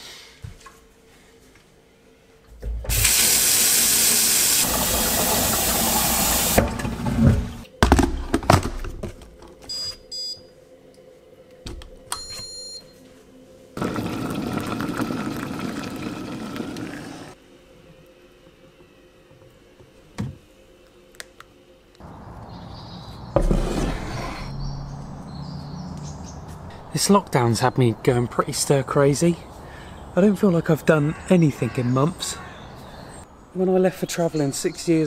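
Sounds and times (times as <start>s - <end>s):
tap water running: 2.8s - 7.6s, 13.8s - 17.4s.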